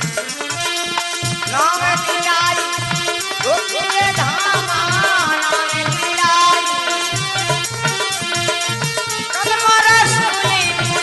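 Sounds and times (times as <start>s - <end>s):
harmonium chords: 0.0s - 11.0s.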